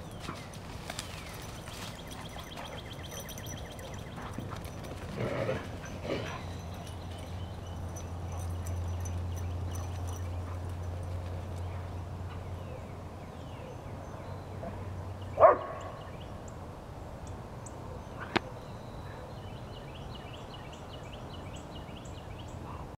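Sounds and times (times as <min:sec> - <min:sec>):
faint small birds chirping: 0:00.0 - 0:05.0
dog barking: 0:15.4 - 0:16.0.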